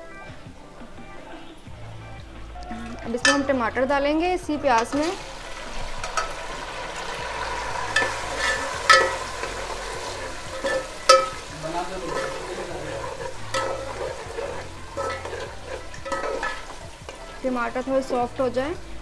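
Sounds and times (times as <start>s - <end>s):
tomatoes frying in ghee: 1.6s - 19.0s
metal spoon knocking against pot: 3.1s - 3.7s, 7.9s - 9.6s, 10.5s - 17.4s.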